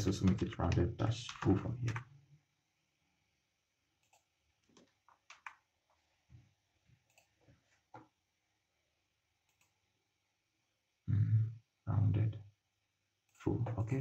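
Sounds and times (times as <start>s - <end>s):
mouse and keyboard clicks: 0.2s - 2.0s, 4.0s - 5.6s.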